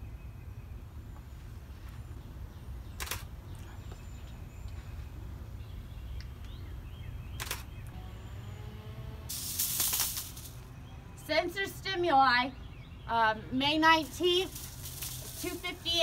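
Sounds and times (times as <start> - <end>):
camera shutter firing: 3.0 - 3.3, 7.4 - 7.7.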